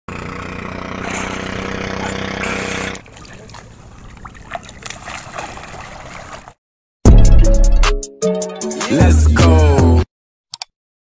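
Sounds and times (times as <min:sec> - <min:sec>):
engine hum: 0:00.1 - 0:06.5
water splashing and trickling: 0:02.0 - 0:06.6.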